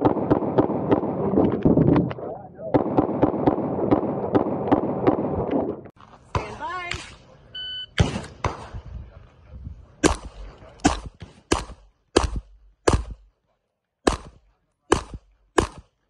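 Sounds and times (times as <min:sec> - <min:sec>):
handgun shots: 0:10.0 - 0:13.3, 0:14.0 - 0:16.0.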